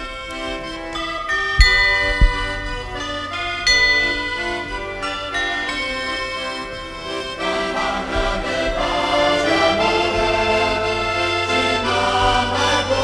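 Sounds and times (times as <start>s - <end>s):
folk music with accordion: 0.0s - 13.0s.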